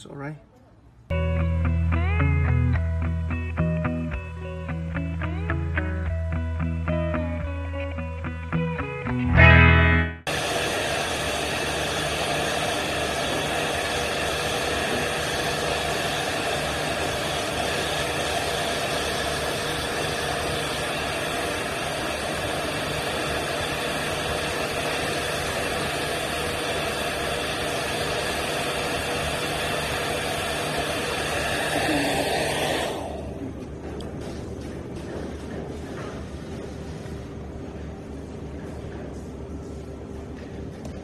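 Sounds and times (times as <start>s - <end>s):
hair dryer running: 9.4s - 34.0s.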